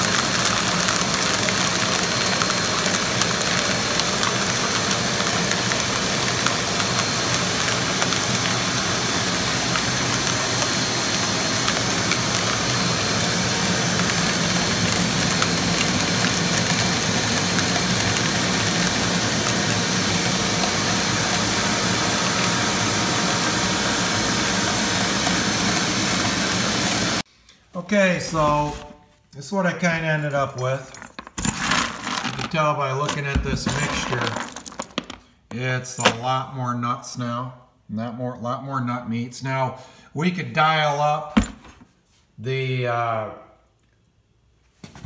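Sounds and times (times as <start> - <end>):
suction motor rushing: 28.3 - 28.9.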